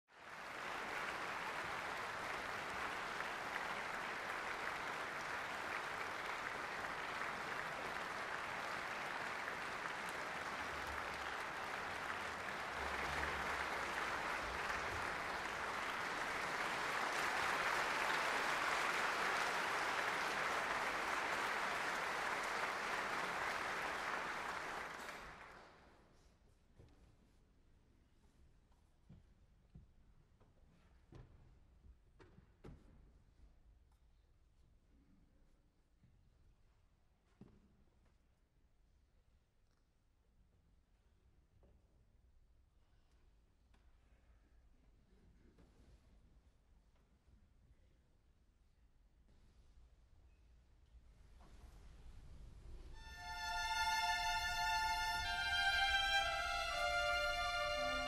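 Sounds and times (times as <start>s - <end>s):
audience applauding: 0.1s - 25.8s, 53.0s - 58.0s.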